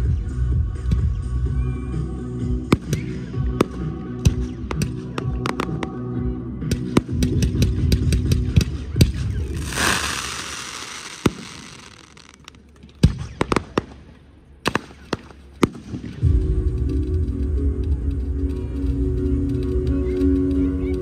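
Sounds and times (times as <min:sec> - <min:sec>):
fireworks bursting: 0:06.7 - 0:16.2
hissing crackle of fireworks: 0:08.6 - 0:14.1
show music: 0:09.5 - 0:12.4.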